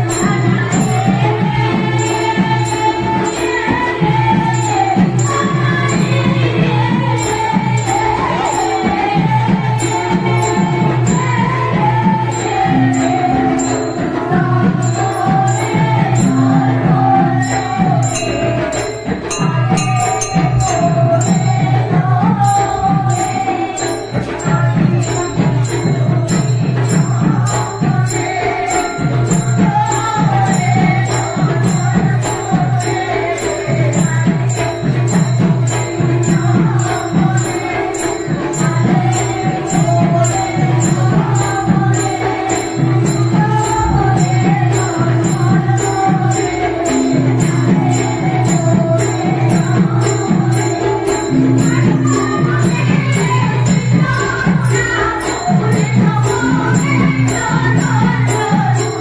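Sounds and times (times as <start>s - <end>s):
drum strokes: 0.0s - 59.0s
hand cymbals clashing: 0.0s - 59.0s
wavering melody line: 9.9s - 27.2s, 37.0s - 55.6s.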